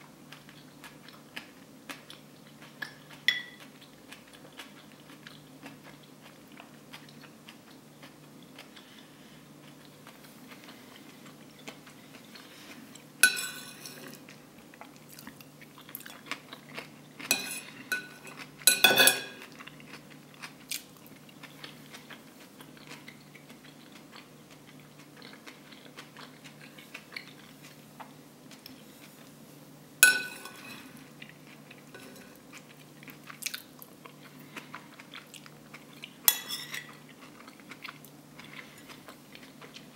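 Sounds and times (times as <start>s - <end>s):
chewing and mouth clicks: 0.2s - 13.1s, 14.1s - 18.6s, 19.4s - 29.4s, 30.8s - 39.9s
spoon striking plate: 3.3s - 3.6s, 13.2s - 14.0s, 17.3s - 19.4s, 30.0s - 30.8s
metal spoon scraping a plate: 13.2s - 14.2s, 17.3s - 19.4s, 30.0s - 30.9s, 31.9s - 32.4s, 36.3s - 37.0s.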